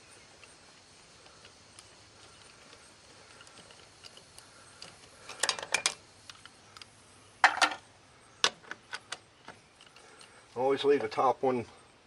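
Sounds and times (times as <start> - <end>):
ratchet clicking on lug nuts: 0.3 - 6.9.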